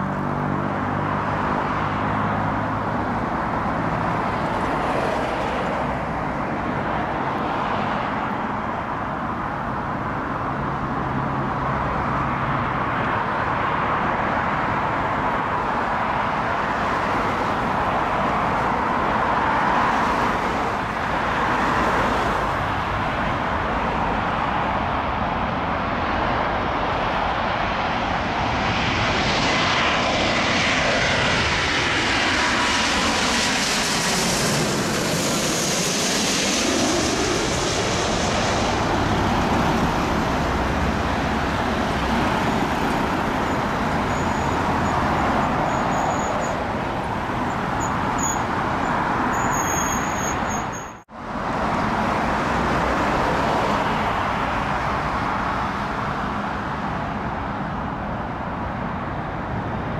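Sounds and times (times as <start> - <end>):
jet airliner passing overhead: 0.0 - 59.9
jet rumble approaching: 22.4 - 49.3.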